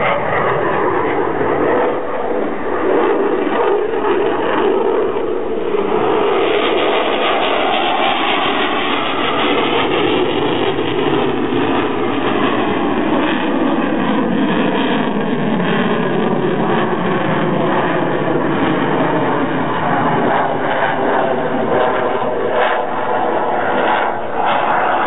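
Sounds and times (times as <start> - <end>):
loud jet engine noise: 0.0 - 25.0.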